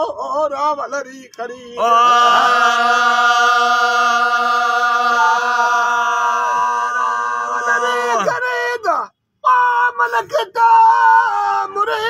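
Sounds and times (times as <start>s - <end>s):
men chanting a long note: 1.4s - 8.5s.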